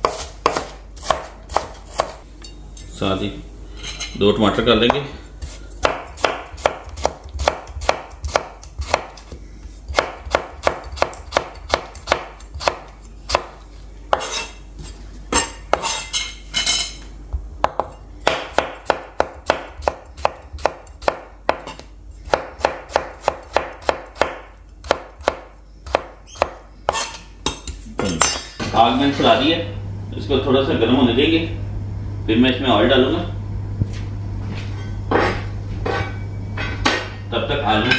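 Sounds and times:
knife chopping on plastic board: 0.0s - 2.2s, 5.4s - 9.3s, 9.9s - 14.4s, 17.6s - 27.1s.

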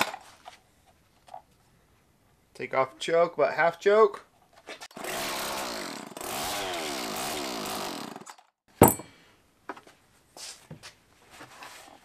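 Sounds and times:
chainsaw engine surging: 5.0s - 8.3s.

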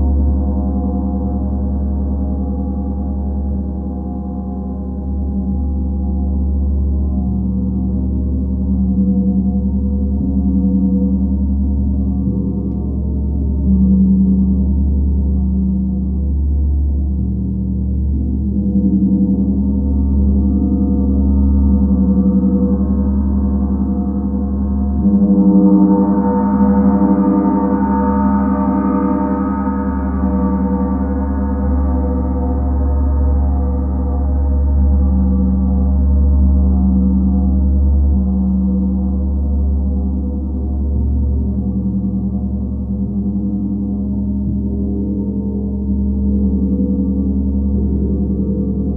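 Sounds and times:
gongs droning: 24.4s - 38.1s.

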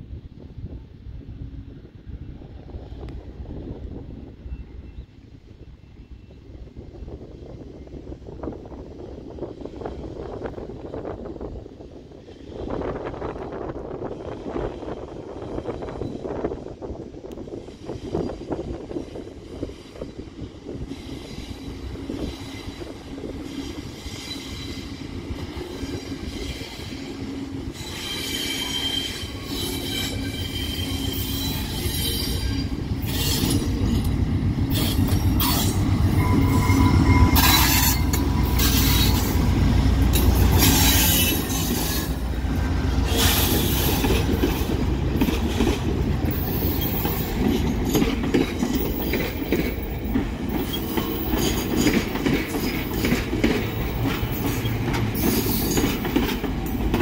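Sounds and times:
train wheel squeal: 3.6s - 7.2s, 14.0s - 16.7s, 17.5s - 42.3s, 43.0s - 57.0s
locomotive engine rumble: 29.2s - 57.0s.

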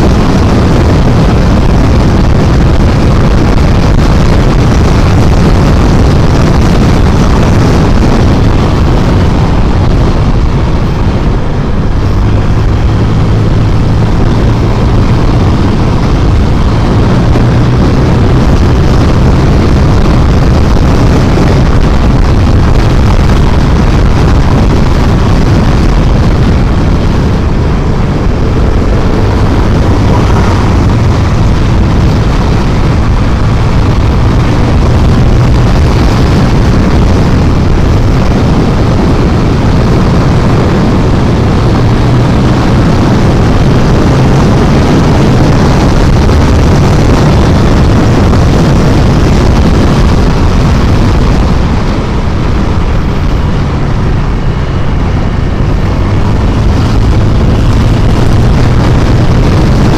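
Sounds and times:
wind noise on microphone: 0.0s - 59.9s
scooter engine running: 4.6s - 42.9s.

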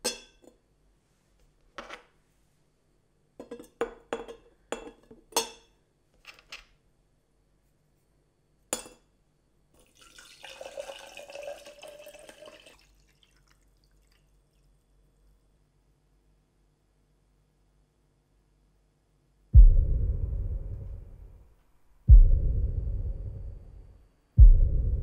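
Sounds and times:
water pouring into a glass: 9.8s - 14.9s.

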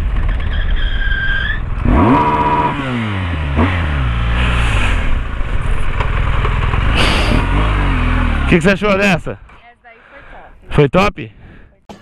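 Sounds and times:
motorcycle engine revving: 0.0s - 9.5s.

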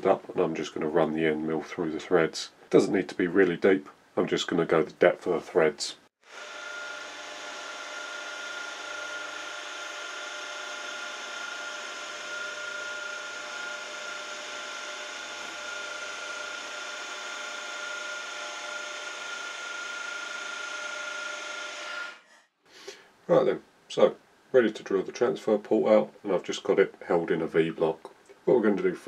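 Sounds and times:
milling machine high-pitched whine: 6.3s - 22.0s.

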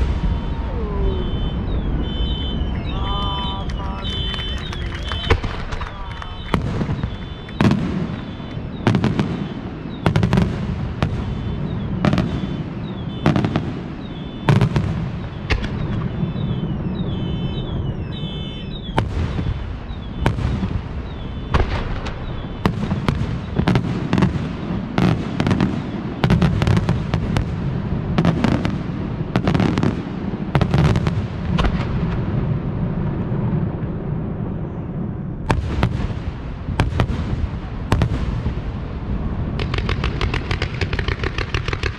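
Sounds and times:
low rumble of echoing reports: 0.0s - 23.5s
firework shells bursting: 3.3s - 16.6s, 39.6s - 41.9s.

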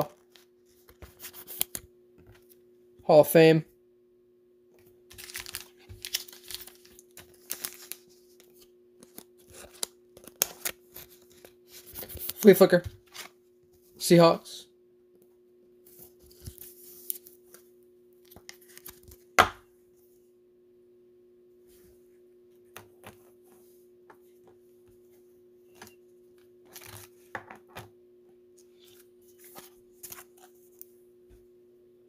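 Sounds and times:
faint steady hum: 0.0s - 32.0s
foil wrapper crinkling: 5.1s - 13.4s
cards tapping on a table: 19.4s - 19.6s.

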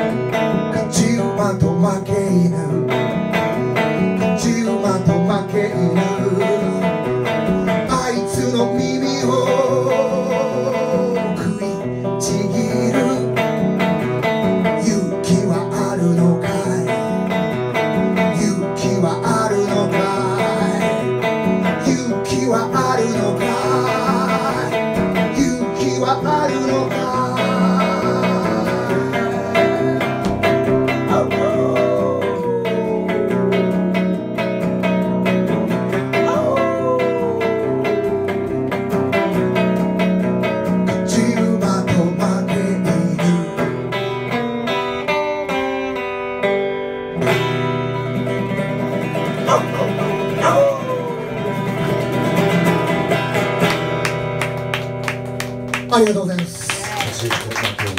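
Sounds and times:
electric guitar strummed and picked: 0.0s - 57.9s
guitar pitch slides: 2.1s - 41.1s, 43.0s - 55.6s.

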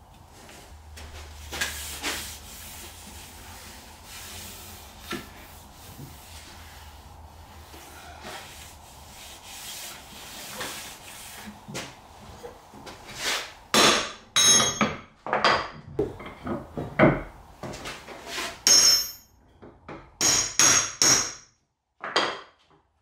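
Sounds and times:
hand rubbing on wood: 1.3s - 13.3s
knocks and scrapes: 15.3s - 20.2s.

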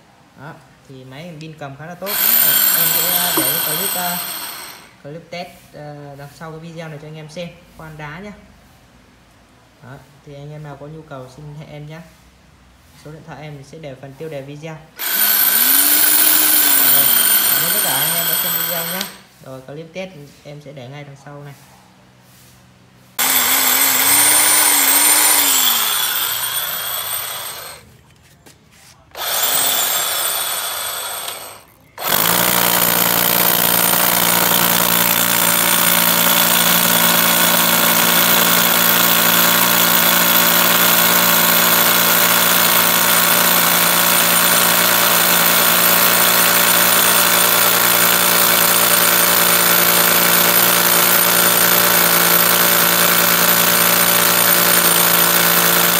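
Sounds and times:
hammer drill drilling into stone: 2.0s - 5.0s, 15.0s - 19.3s, 23.2s - 27.8s, 29.1s - 55.9s.

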